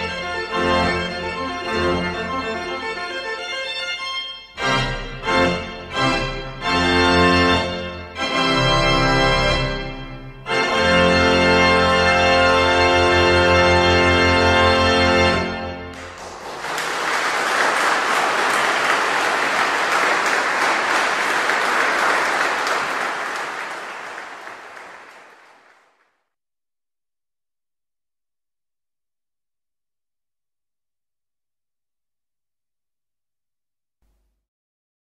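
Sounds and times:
pipe organ chords: 0.0 - 25.8
audience applause: 15.9 - 26.1.

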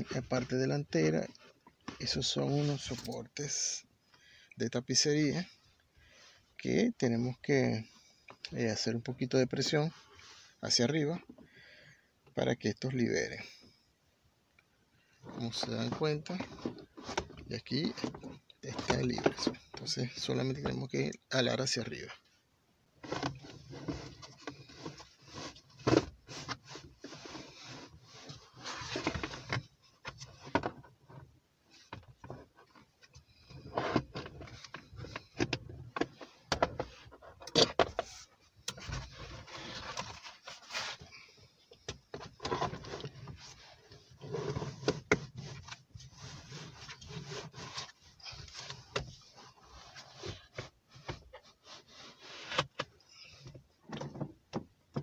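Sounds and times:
plastic trim scraping and rubbing: 23.0 - 31.2, 41.8 - 54.3.

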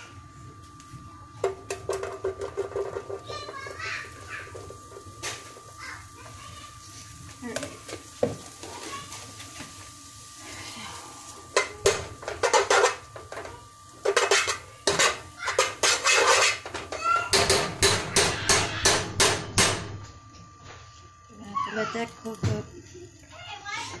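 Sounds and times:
utensil scraping a pot: 14.0 - 17.0.

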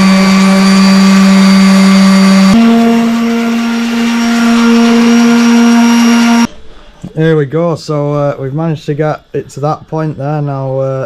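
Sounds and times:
orbital sander humming: 0.0 - 6.5.

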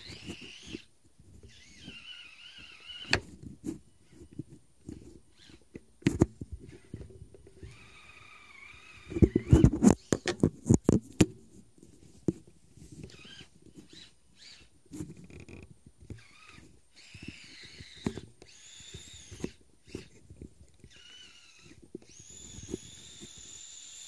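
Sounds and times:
electric motor whining: 1.5 - 3.2, 7.6 - 10.2, 16.2 - 20.1, 20.8 - 24.0.

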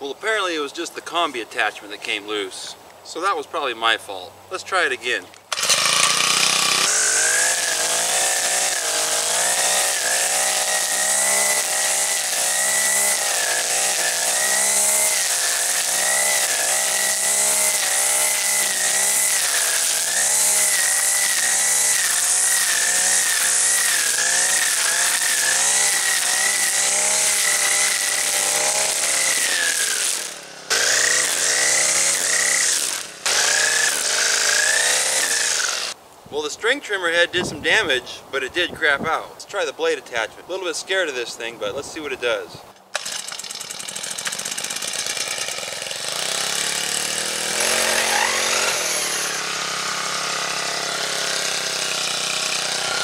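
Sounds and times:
string trimmer engine revving: 5.5 - 36.0, 42.8 - 53.0.

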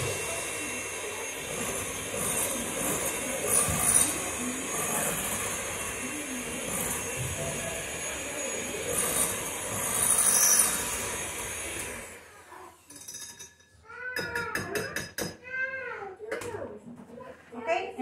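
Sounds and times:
electric hand mixer whirring: 0.0 - 12.8.

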